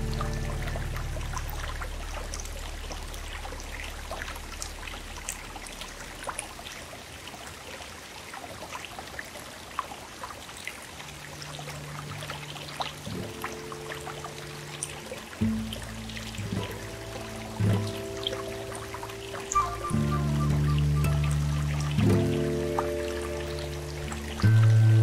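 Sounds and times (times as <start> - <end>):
background music: 0.0 - 2.7, 15.4 - 25.0
stream flowing over rocks: 0.0 - 25.0.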